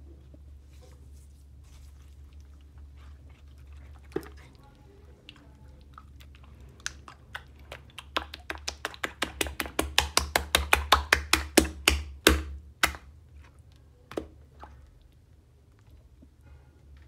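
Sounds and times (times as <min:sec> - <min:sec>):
wet hand slaps: 0:08.0 - 0:13.1.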